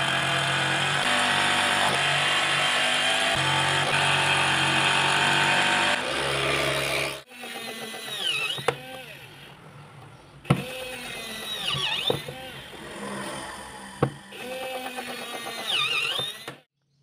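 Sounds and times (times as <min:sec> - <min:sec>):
electric drill boring plastic: 0:00.0 - 0:09.6, 0:10.5 - 0:16.7
motor whirring: 0:07.1 - 0:09.7, 0:10.4 - 0:16.7.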